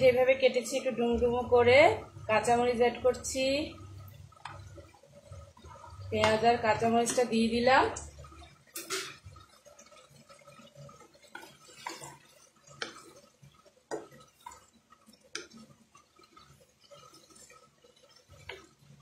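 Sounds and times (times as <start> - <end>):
spatula scraping frying pan: 8.4 - 18.9.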